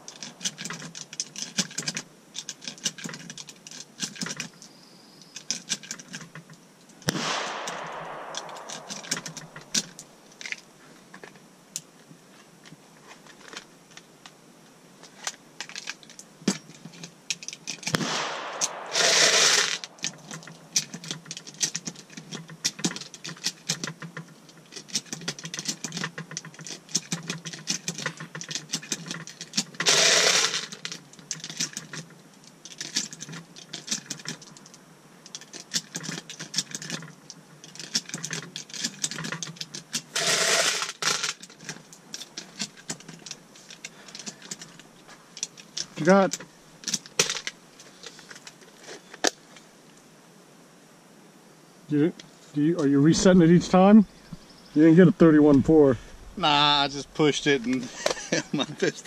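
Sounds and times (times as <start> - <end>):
light clicks and rattles: 0.0 - 14.4, 19.8 - 29.9, 30.5 - 40.1, 40.8 - 49.6
rustling bursts: 7.0 - 10.6, 17.7 - 22.4
gunshot with echo: 7.1 - 10.0, 17.9 - 20.0.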